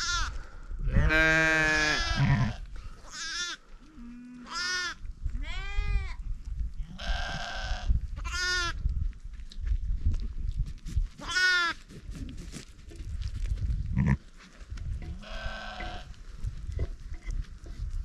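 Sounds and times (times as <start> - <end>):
sheep bleating: 1.0 - 3.6, 11.2 - 11.8, 15.2 - 16.1.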